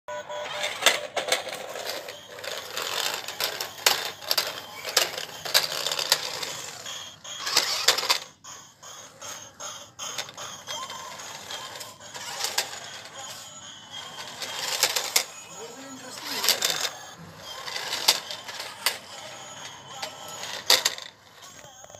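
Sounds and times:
toy car motors whirring: 0.1 - 21.9.

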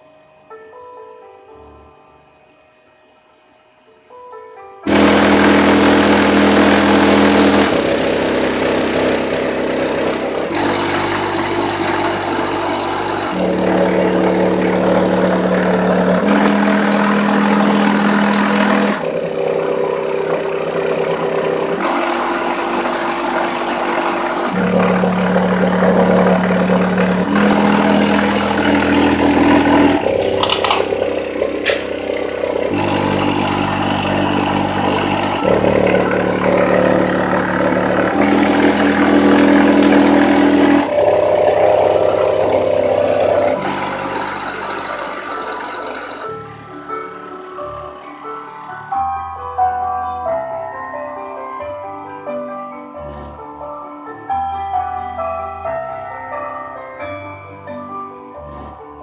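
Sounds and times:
bass-heavy music through subwoofer: 4.9 - 21.9, 24.5 - 44.5
sharp clicks: 30.0 - 32.1.

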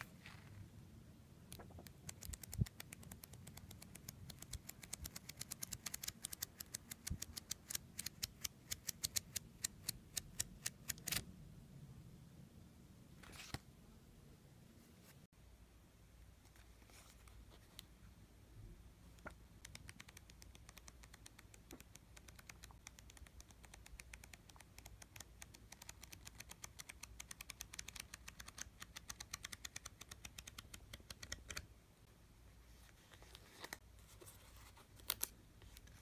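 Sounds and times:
flipbook pages flicking: 1.6 - 9.2, 25.0 - 31.6.

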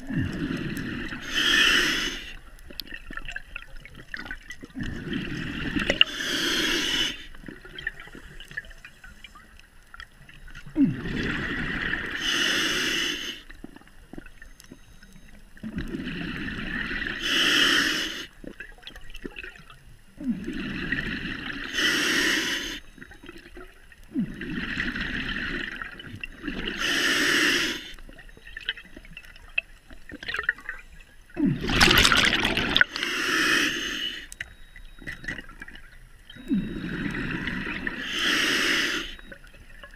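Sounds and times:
breathing through a regulator: 0.0 - 2.5, 4.8 - 9.5, 10.7 - 13.6, 15.8 - 18.4, 20.2 - 23.0, 24.1 - 28.0, 32.8 - 34.5, 36.4 - 39.4
exhaled bubbles rushing: 31.4 - 33.0.

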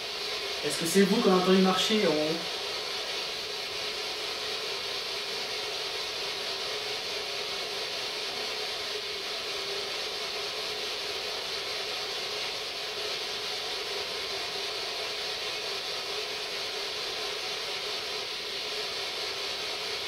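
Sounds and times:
radio static hiss: 0.6 - 2.9.

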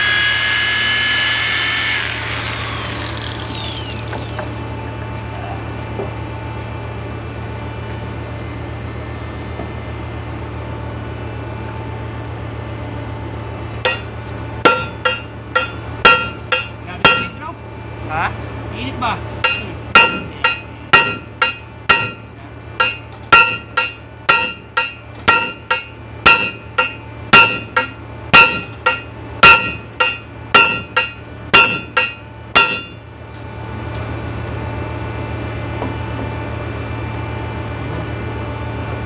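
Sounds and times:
low machinery hum: 0.0 - 39.0
hammer striking metal: 13.8 - 17.5, 19.4 - 33.0.

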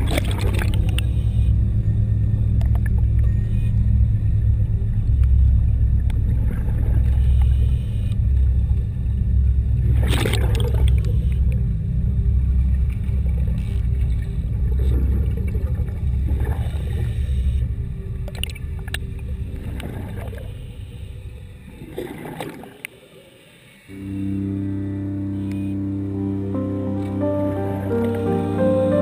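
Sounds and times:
low underwater rumble: 0.0 - 22.6.

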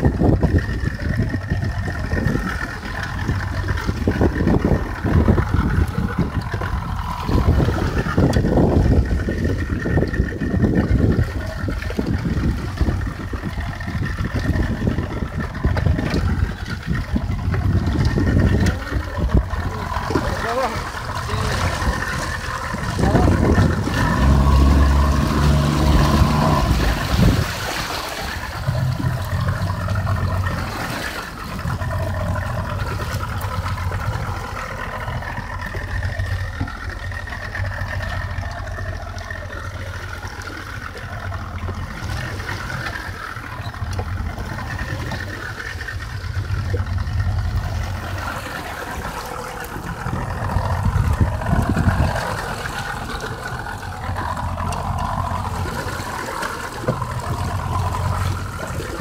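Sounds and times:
outboard motor running: 0.0 - 59.0.

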